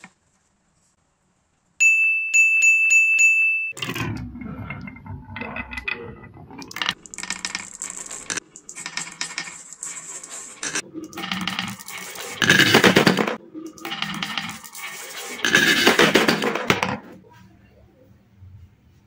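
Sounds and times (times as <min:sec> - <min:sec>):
marbles rolling on wooden track: 0:03.8 - 0:17.2
marbles clattering into wooden box: 0:05.4 - 0:17.1.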